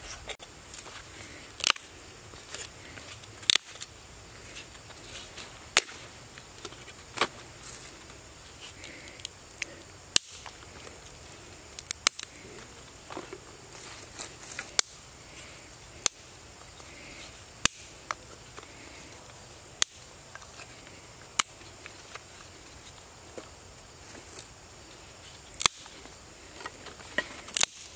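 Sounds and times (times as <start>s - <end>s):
sticks snapping: 1.5s - 1.9s, 2.5s - 3.9s, 5.2s - 7.8s, 8.8s - 12.4s, 14.1s - 15.0s, 16.0s - 17.0s, 17.6s - 18.8s, 19.8s - 20.7s, 21.3s - 22.2s, 25.5s - 26.0s, 26.6s - 27.9s.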